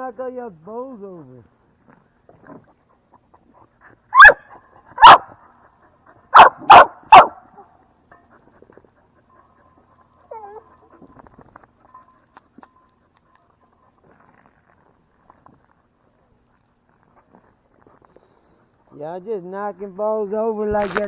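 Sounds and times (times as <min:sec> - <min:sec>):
dog barking loudly: 0:04.1 - 0:05.4, 0:06.3 - 0:07.6
dog whining faintly: 0:09.2 - 0:11.2.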